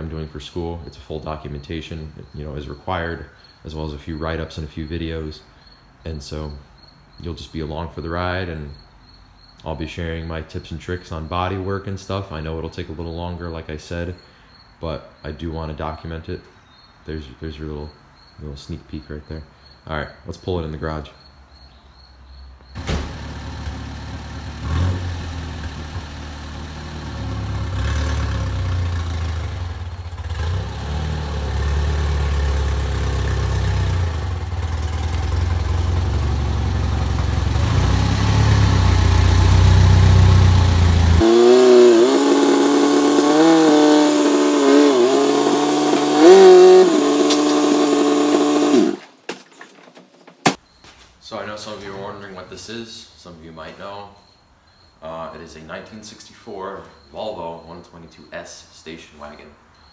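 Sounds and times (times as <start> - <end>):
car engine rumbling: 22.7 - 49.0.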